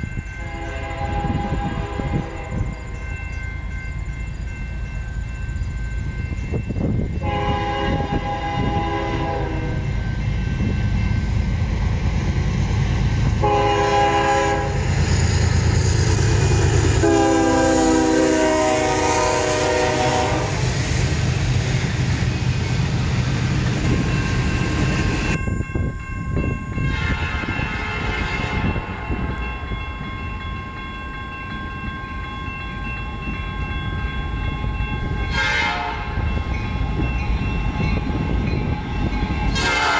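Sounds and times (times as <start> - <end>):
train rumbling: 0.0 - 39.9
locomotive air horn blasts: 0.4 - 2.4, 7.2 - 9.9, 13.4 - 14.9, 16.9 - 20.6, 26.8 - 28.8, 35.3 - 36.2, 39.5 - 39.9
high ringing tone: 23.8 - 27.7.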